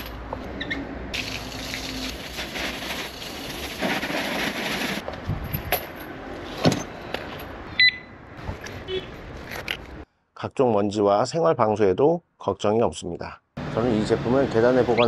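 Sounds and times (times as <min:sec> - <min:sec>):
hose water spraying: 0:01.2 - 0:05.0
high beep: 0:07.8 - 0:08.2.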